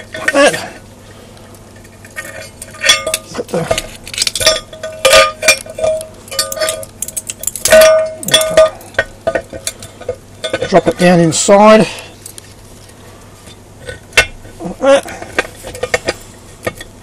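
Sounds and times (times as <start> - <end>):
metal clinks and knocks: 1.8 - 11.2, 15.1 - 17.0
metal parts scraping: 1.8 - 11.2, 13.8 - 16.9.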